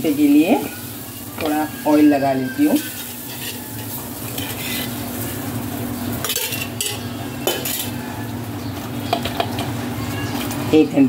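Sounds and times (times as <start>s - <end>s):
kitchen hiss and hum: 0.0s - 11.0s
metal utensils clinking: 0.1s - 5.4s, 6.1s - 8.1s.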